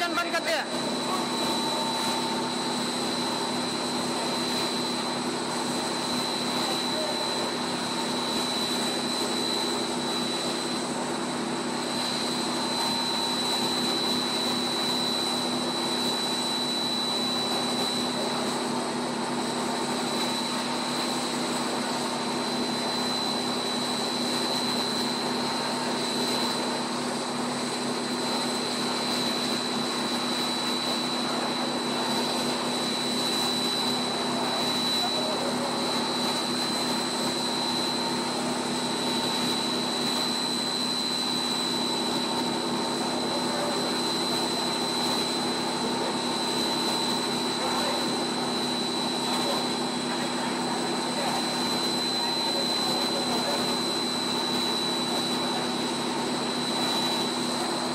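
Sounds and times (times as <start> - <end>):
drone of motors and air: 0.0 - 57.9
high-pitched machine whine: 0.0 - 57.9.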